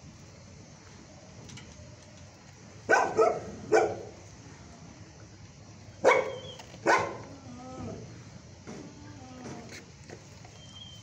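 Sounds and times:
low background hum: 0.0 - 11.0
dog barking: 2.9 - 4.1, 6.0 - 7.3.

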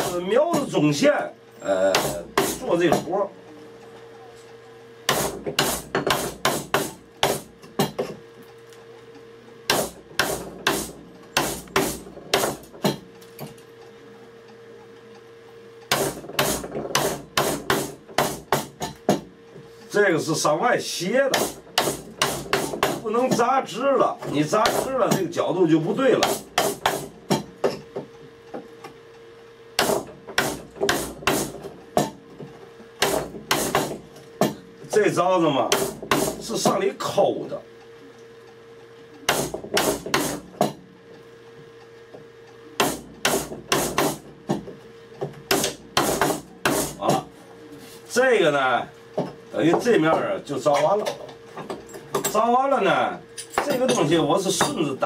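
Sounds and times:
mallet striking chisel: 9.7 - 13.0, 33.0 - 34.6, 35.7 - 36.5, 39.3 - 40.8, 42.8 - 44.6, 45.5 - 47.2.

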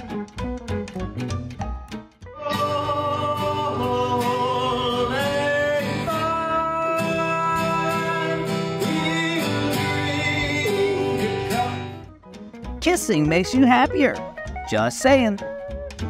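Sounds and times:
background music with bass line: 0.0 - 16.0.

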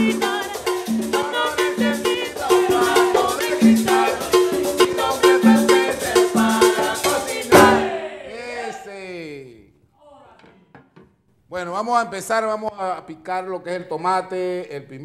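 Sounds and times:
hand drum: 0.0 - 7.9
woman singing: 0.0 - 7.9
sharp loud hit: 7.5 - 8.0.

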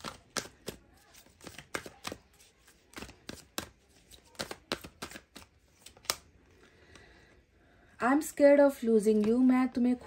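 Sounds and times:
cards being shuffled: 0.0 - 6.3.

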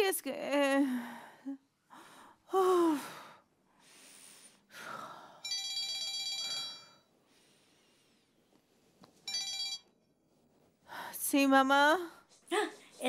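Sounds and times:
mobile phone ringtone: 5.4 - 7.1, 9.3 - 10.0.

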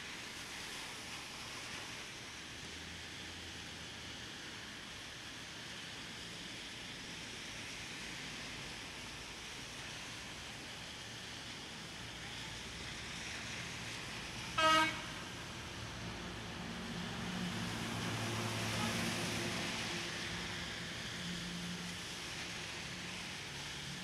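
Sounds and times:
rain hiss: 0.0 - 24.0
street traffic: 0.1 - 24.0
passing vehicle engine: 13.2 - 24.0
vehicle horn toot: 14.6 - 15.2.

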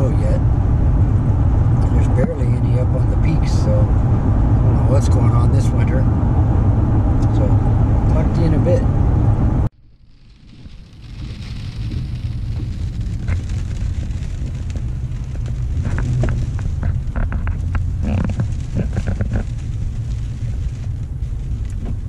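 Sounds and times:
engine and road rumble: 0.0 - 22.0
sharp crackles and clicks: 9.6 - 22.0.

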